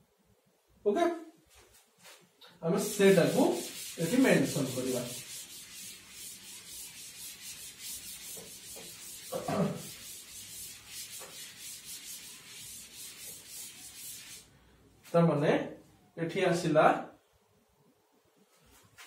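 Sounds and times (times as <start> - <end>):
duster rubbing chalkboard: 2.7 - 14.5.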